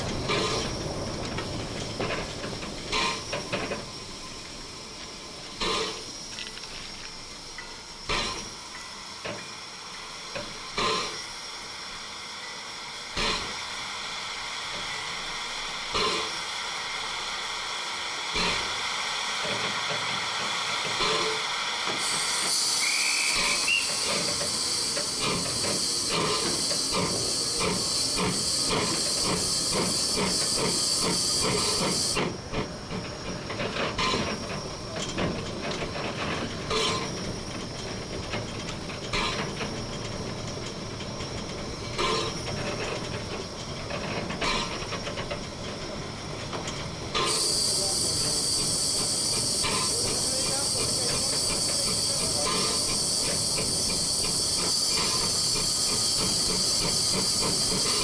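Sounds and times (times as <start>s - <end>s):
steam locomotive hissing: 0.0s - 58.0s
rising whistle note: 22.2s - 25.0s.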